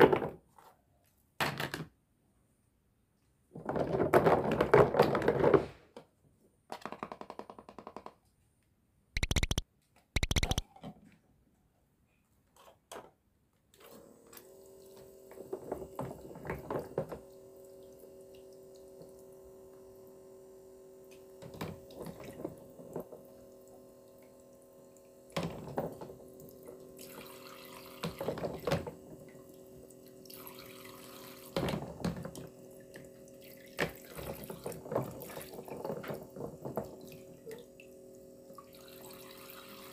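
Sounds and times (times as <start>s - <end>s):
plastic toy pieces clacking: 9.2s - 9.6s, 10.2s - 10.6s
toy pump humming: 9.2s - 9.6s, 10.2s - 10.6s
water trickling into plastic basin: 25.5s - 31.6s.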